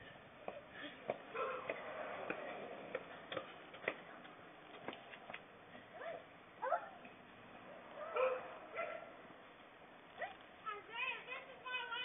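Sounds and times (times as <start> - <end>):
dog yipping: 8.0 - 9.1.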